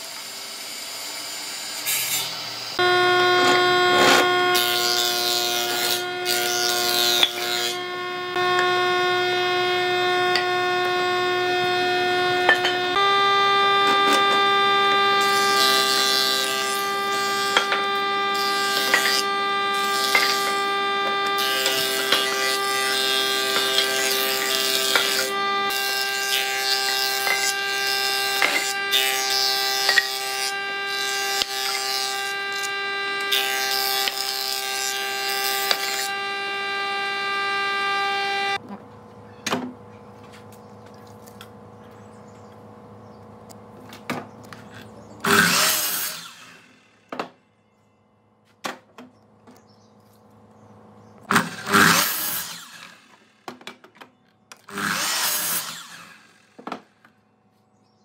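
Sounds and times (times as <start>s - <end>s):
loud rasping bursts: 0.0s - 38.6s, 44.6s - 47.1s, 51.2s - 53.4s, 54.6s - 56.6s
power tool whining on wood: 0.0s - 38.7s, 40.3s - 47.4s, 51.1s - 53.8s, 54.5s - 57.2s.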